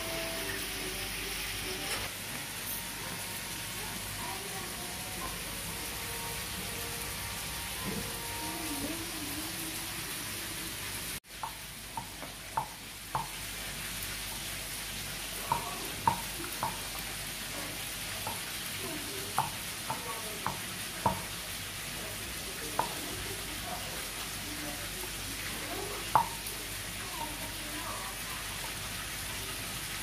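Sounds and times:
wooden pestle pounding in bowl: 0:15.5 - 0:16.9, 0:19.4 - 0:21.3.

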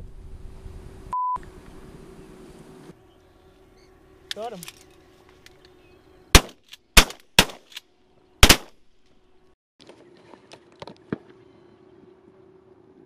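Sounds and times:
shotgun blasts: 0:06.3 - 0:07.8, 0:08.4 - 0:08.9.

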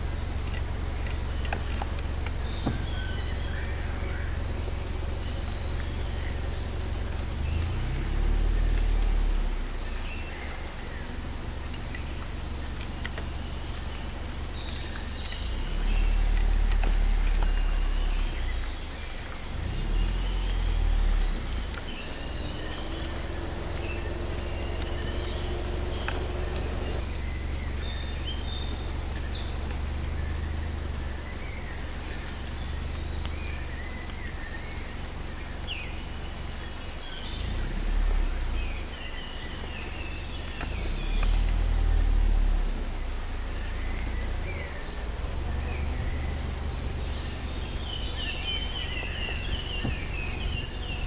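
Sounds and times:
birds chirping: 0:00.0 - 0:51.0
vehicle engine rumbling: 0:00.0 - 0:51.0.

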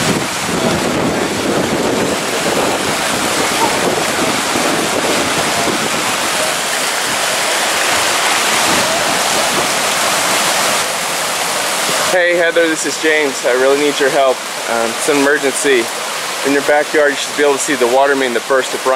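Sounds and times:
floodwater rushing: 0:00.0 - 0:18.9.

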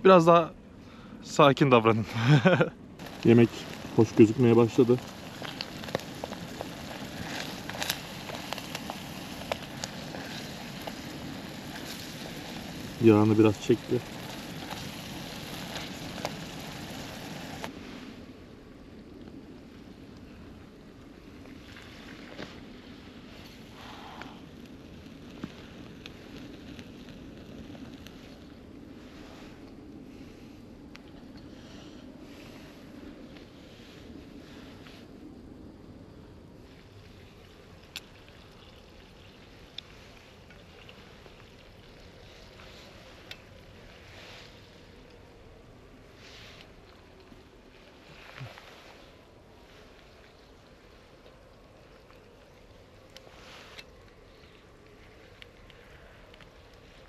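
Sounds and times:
food sizzling in a pan: 0:03.0 - 0:17.7.

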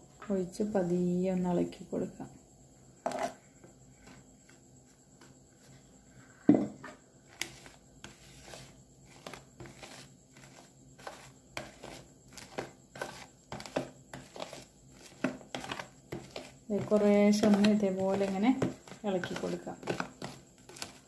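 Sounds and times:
plastic spoon stirring batter: 0:07.2 - 0:21.0.

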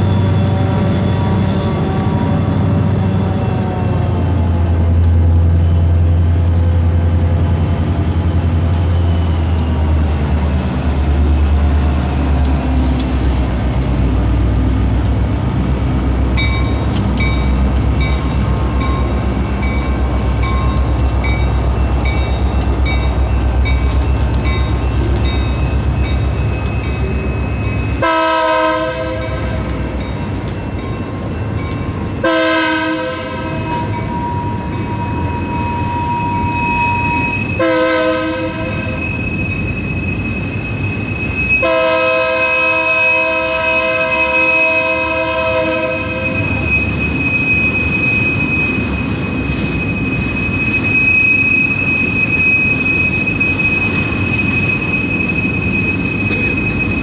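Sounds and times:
diesel locomotive engine rumble: 0:00.0 - 0:57.0
locomotive bell dinging: 0:16.1 - 0:32.4, 0:33.2 - 0:37.8, 0:45.9 - 0:57.0
train air horn: 0:28.0 - 0:29.6, 0:32.2 - 0:33.9, 0:37.6 - 0:39.0, 0:41.6 - 0:46.5.

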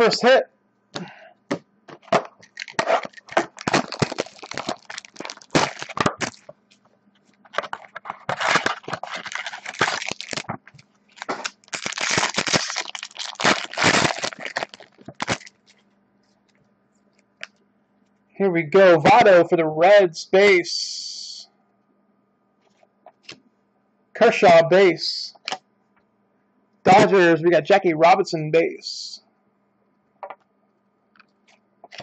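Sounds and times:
plastic wrapper crinkling and tearing: 0:02.3 - 0:06.6, 0:07.5 - 0:15.9.

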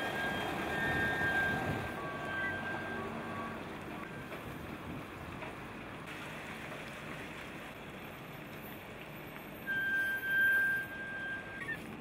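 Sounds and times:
truck running: 0:00.0 - 0:06.0.

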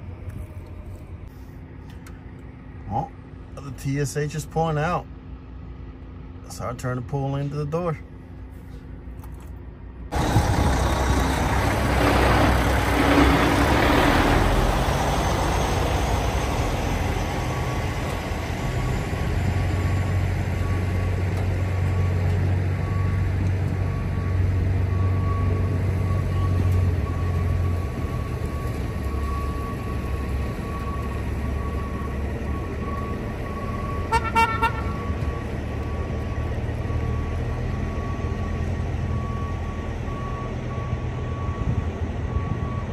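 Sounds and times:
diesel truck engines rumbling: 0:00.0 - 0:42.9
truck horn toots: 0:34.1 - 0:35.1.

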